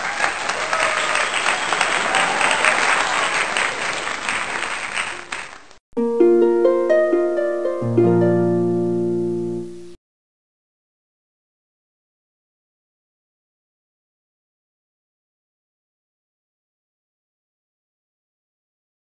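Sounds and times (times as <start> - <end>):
crowd applause and cheering: 0.0 - 5.8
deep bass notes: 6.0 - 10.0
plucked string notes: 6.0 - 10.0.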